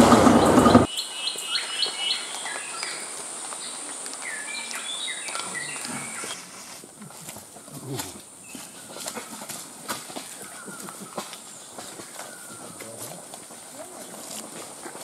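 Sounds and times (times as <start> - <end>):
songbird calling: 0.0 - 6.8, 10.2 - 13.3.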